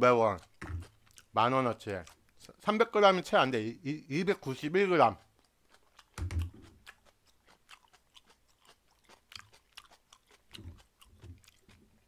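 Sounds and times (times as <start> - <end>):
close chewing: 0.0 - 2.8, 4.2 - 12.0
low mouth sounds: 0.3 - 1.3
wet mouth clicks: 0.3 - 2.6, 5.1 - 11.9.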